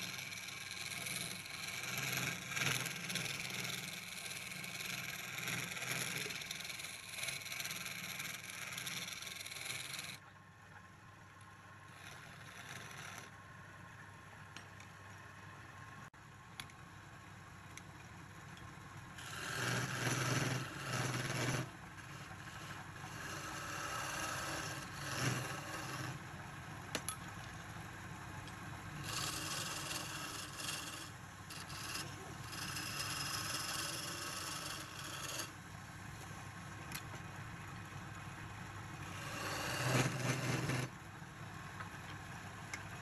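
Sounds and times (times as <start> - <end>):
chisel cutting spinning wood: 0.0 - 10.2, 11.8 - 13.4, 18.8 - 27.6, 28.4 - 35.7, 38.8 - 41.0.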